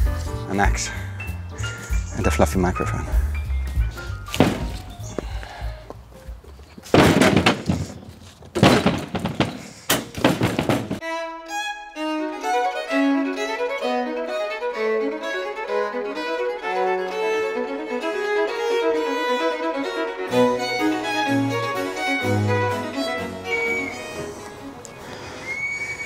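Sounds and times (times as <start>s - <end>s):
branches rustling: 3.9s - 11.0s
wood thuds: 4.3s - 5.5s, 6.8s - 11.0s
classical string music with violin: 11.0s - 25.4s.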